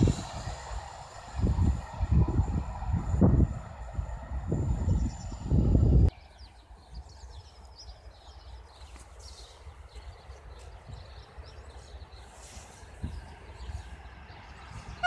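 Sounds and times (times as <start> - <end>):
small birds chirping: 4.0 - 15.0.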